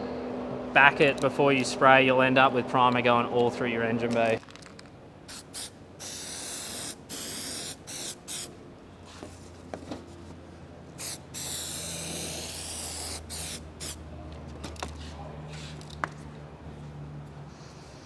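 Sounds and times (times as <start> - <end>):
aerosol can spraying: 5.3 - 8.5, 11.0 - 14.0.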